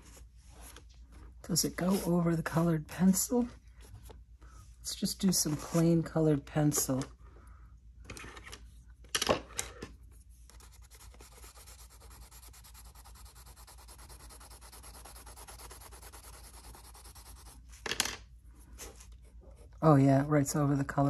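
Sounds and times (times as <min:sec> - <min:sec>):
pencil scratching on paper: 0:10.5 - 0:17.8.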